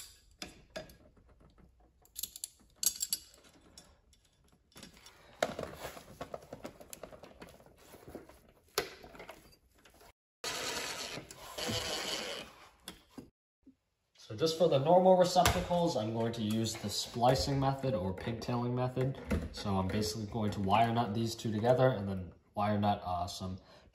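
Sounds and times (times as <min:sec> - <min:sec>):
drill-driver driving screws: 0:10.4 - 0:12.6.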